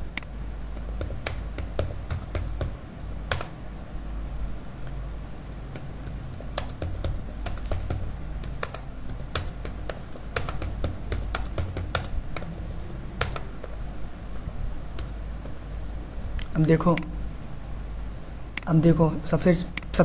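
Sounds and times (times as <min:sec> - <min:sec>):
low steady hum: 0:00.0 - 0:20.0
keyboard typing: 0:00.1 - 0:03.6, 0:04.8 - 0:15.6.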